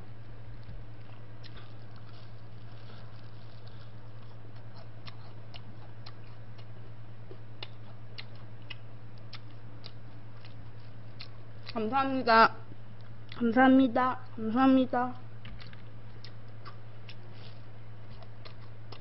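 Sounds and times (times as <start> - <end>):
steady low hum: 0.0 - 19.0
crunchy chewing: 0.5 - 11.9, 15.4 - 19.0.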